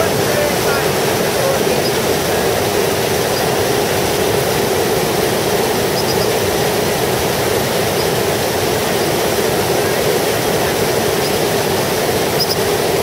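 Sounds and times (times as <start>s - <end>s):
water rushing down cascade: 0.0s - 13.0s.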